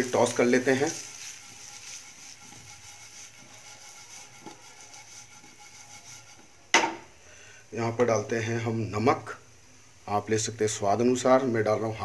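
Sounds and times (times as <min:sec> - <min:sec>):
potatoes shuffling in frying pan: 0:00.0 - 0:09.4
soft steady hiss: 0:00.0 - 0:12.0.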